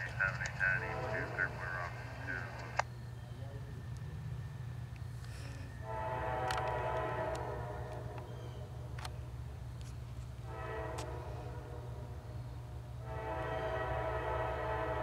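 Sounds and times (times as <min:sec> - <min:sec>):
low train rumble: 0:00.0 - 0:15.0
locomotive air horn blasts: 0:00.8 - 0:01.5, 0:05.8 - 0:08.8, 0:10.4 - 0:12.3, 0:13.0 - 0:15.0.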